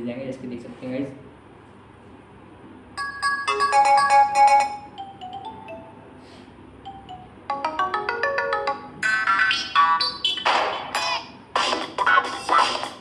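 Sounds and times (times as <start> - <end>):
phone ringtone melody: 3.0 - 6.2, 6.8 - 10.4.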